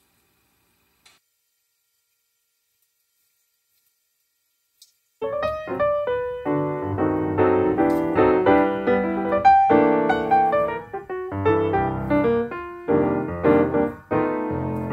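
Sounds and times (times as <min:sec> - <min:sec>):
background piano music: 0:05.2 - 0:14.9.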